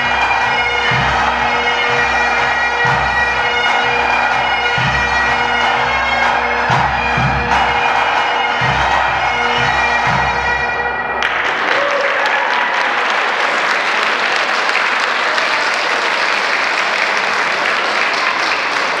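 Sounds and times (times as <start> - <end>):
audience applause: 0.0 - 2.2, 11.2 - 19.0
bagpipes playing: 0.0 - 11.4.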